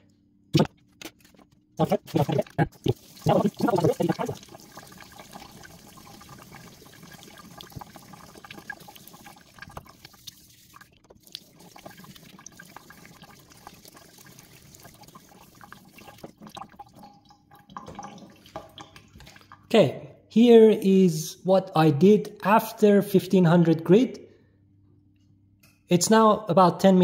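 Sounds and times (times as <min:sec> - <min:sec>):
tap water running into sink: 0:02.2 - 0:19.7
water drips: 0:02.2 - 0:19.7.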